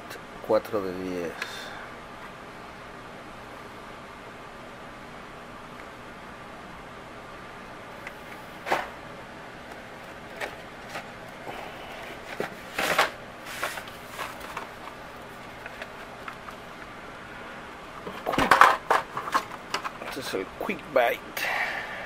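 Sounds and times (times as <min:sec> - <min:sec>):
steady low hiss: 0:00.0 - 0:22.0
blister-pack cards clicking and rustling: 0:12.2 - 0:16.6.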